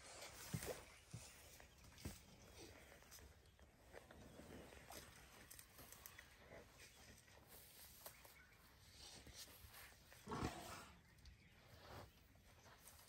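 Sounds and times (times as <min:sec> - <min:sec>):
low elephant vocal sound: 0:10.1 - 0:11.1.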